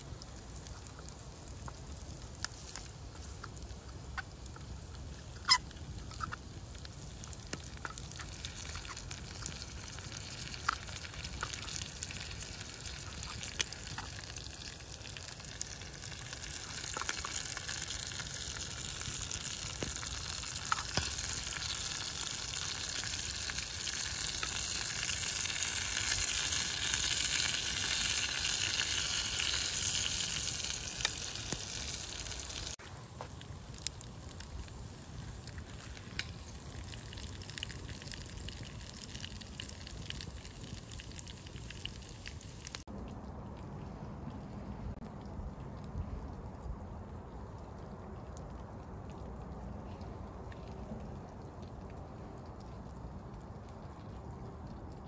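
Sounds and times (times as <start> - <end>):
food sizzling over fire: 0.0 - 43.0
burning wood crackling: 0.0 - 55.0.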